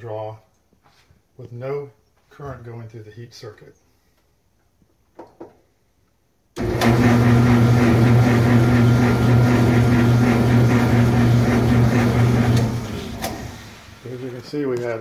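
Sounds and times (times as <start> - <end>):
dryer motor humming: 6.6 - 14.5.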